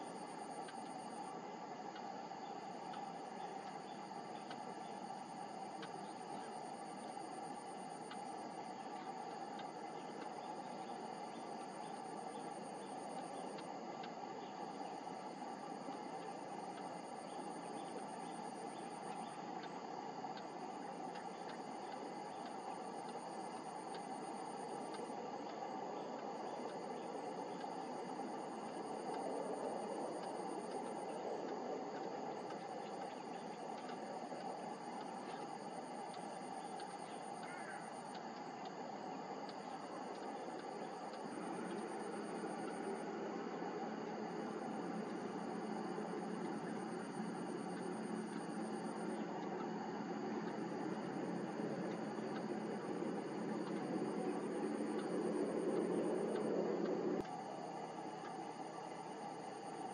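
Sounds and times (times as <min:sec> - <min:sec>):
steady rushing background noise: 0:00.0 - 0:59.9
insect trilling: 0:01.9 - 0:43.2.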